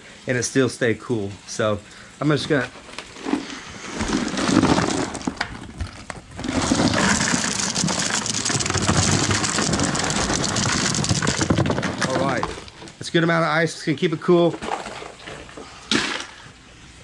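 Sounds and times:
ice cubes pouring into a bucket: 0:02.5 - 0:13.1, 0:14.4 - 0:16.4.

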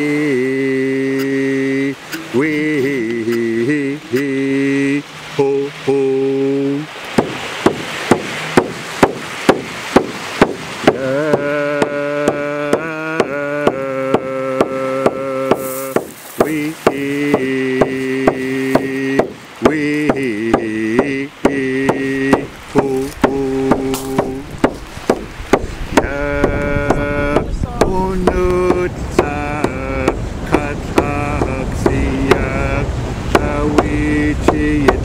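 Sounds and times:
person chanting long notes: 0:00.0 - 0:07.0, 0:10.9 - 0:24.6, 0:26.0 - 0:35.0
frame drum beat: 0:07.2 - 0:32.7, 0:33.3 - 0:35.0.

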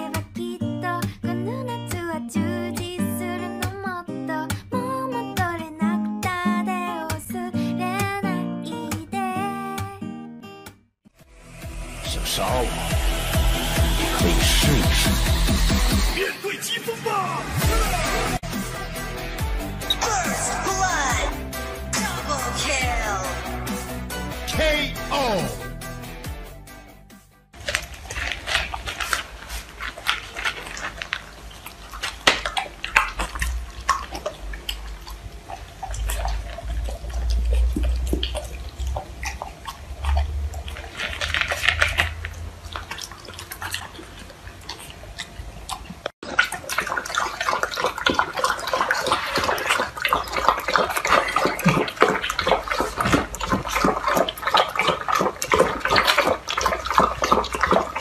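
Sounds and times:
dogs lapping milk: 0:13.3 - 0:16.2, 0:19.9 - 0:21.4, 0:27.6 - 0:58.0
dog crunching dry kibble: 0:27.6 - 0:58.0.

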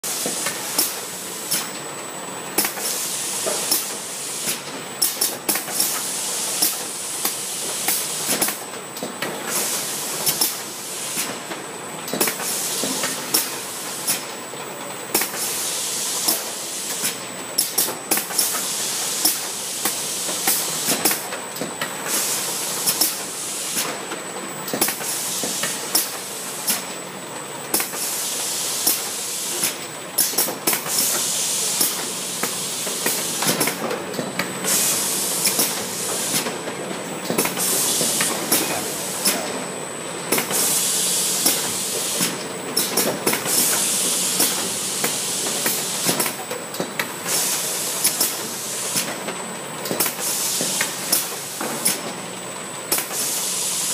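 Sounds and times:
continuous air hiss: 0:00.0 - 0:53.9
short bursts of air: 0:02.6 - 0:08.6, 0:15.2 - 0:21.2, 0:22.1 - 0:24.0, 0:27.8 - 0:33.8, 0:34.6 - 0:36.6, 0:37.4 - 0:39.5, 0:40.3 - 0:46.4, 0:47.2 - 0:49.1, 0:50.0 - 0:52.0, 0:52.9 - 0:53.9
pneumatic gripper clacking: 0:16.2 - 0:24.0, 0:28.8 - 0:39.6, 0:40.3 - 0:49.2, 0:49.8 - 0:52.2, 0:52.9 - 0:53.9.

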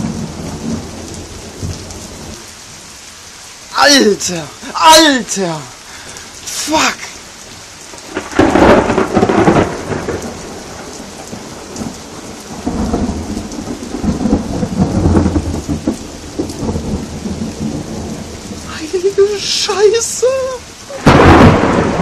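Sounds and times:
thunder clap and rumble: 0:00.0 - 0:02.4, 0:07.9 - 0:18.7, 0:20.9 - 0:22.0
steady rain: 0:00.0 - 0:22.0.

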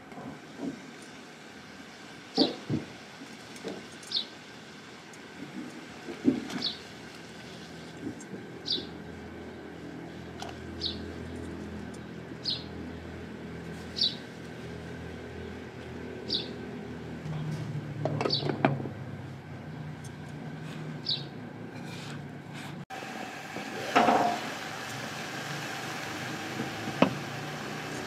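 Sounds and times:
small bird chirping: 0:21.0 - 0:21.3.

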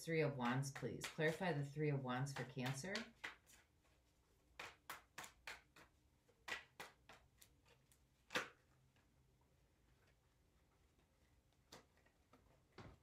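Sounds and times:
cards being shuffled: 0:02.2 - 0:09.1.

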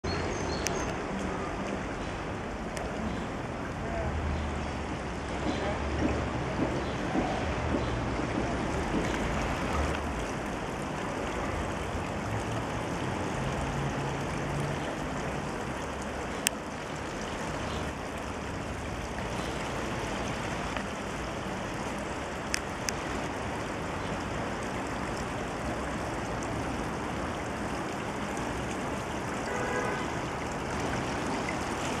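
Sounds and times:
running water rushing: 0:00.0 - 0:32.0.

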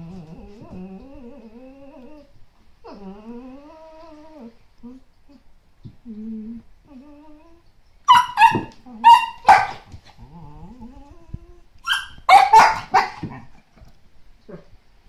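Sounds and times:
dogs whining: 0:00.0 - 0:13.6
sharp high dog barks: 0:08.1 - 0:09.8, 0:11.9 - 0:13.2.

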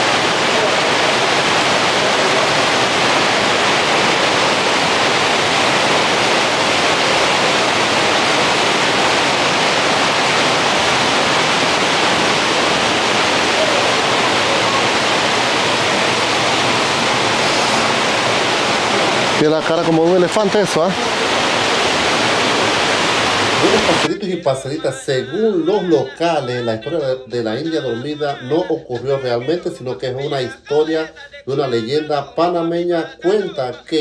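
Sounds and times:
rushing stream water: 0:00.0 - 0:24.1.

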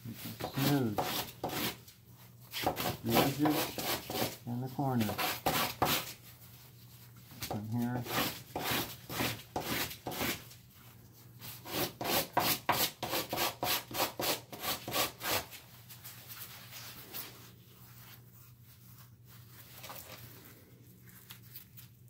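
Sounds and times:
sanding on sandpaper by hand: 0:00.2 - 0:01.8, 0:02.5 - 0:06.2, 0:07.9 - 0:10.4, 0:11.5 - 0:15.6
faint handling rustle: 0:15.6 - 0:22.0.

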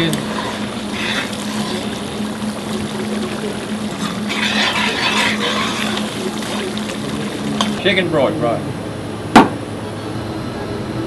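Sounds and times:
metal spoon stirring: 0:00.0 - 0:07.8
vegetables sizzling in a pot: 0:00.0 - 0:07.9
steady low hum: 0:00.0 - 0:11.0.

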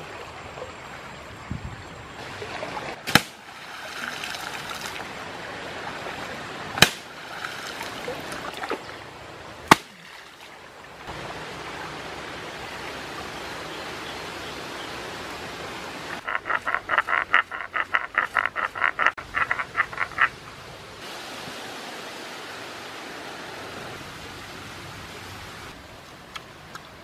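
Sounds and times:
river water flowing: 0:00.0 - 0:27.0
spear thudding into mud: 0:03.1 - 0:03.4, 0:06.8 - 0:07.1, 0:09.7 - 0:10.1.

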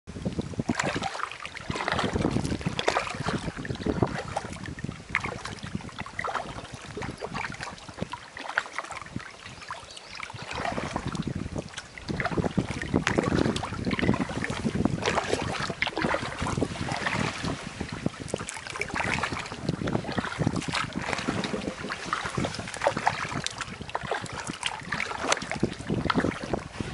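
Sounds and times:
paddle strokes splashing: 0:00.1 - 0:26.9
wind on microphone: 0:00.1 - 0:26.9.

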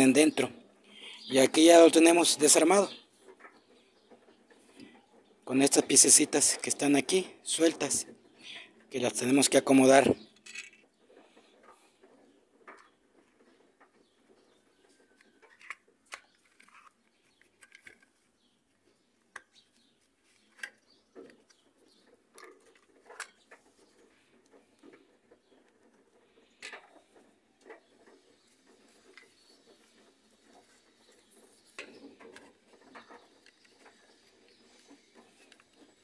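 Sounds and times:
plastic parts clicking: 0:10.3 - 0:10.9, 0:15.1 - 0:36.0.

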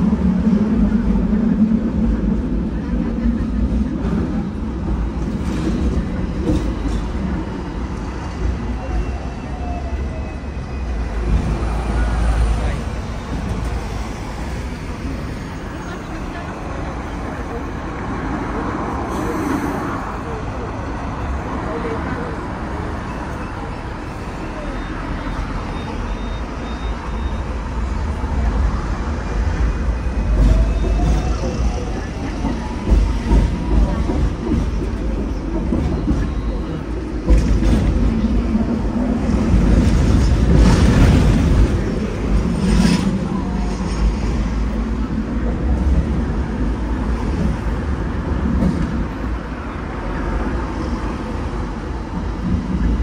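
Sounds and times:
road traffic: 0:00.0 - 0:53.0
tram rumble: 0:00.0 - 0:53.0.

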